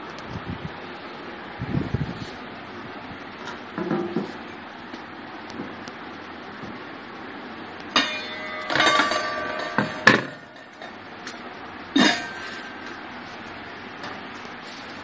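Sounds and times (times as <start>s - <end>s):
metal lid clanking on rim: 7.9s - 13.0s.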